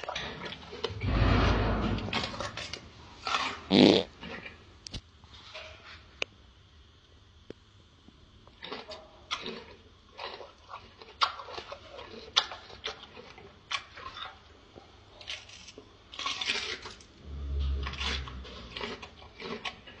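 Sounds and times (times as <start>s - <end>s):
gorilla chewing crunchily: 0.0s - 1.0s, 2.1s - 4.7s, 8.4s - 20.0s
low rumble: 1.0s - 3.0s, 17.2s - 18.9s.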